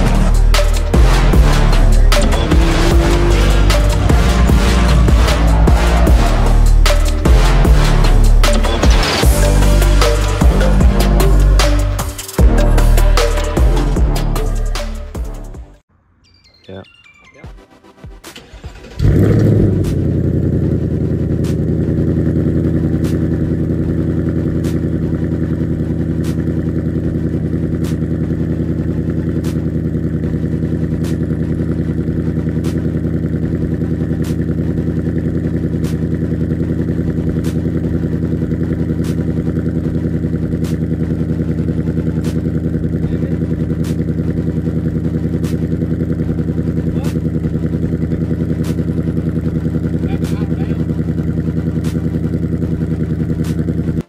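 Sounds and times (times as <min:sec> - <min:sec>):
car engine fast idle: 0:18.4 - 0:54.0.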